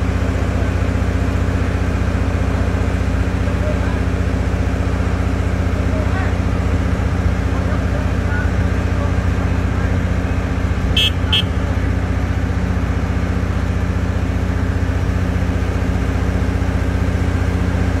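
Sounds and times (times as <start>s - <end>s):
tractor diesel engine running: 0.0s - 18.0s
short high-pitched beeps: 11.0s - 11.5s.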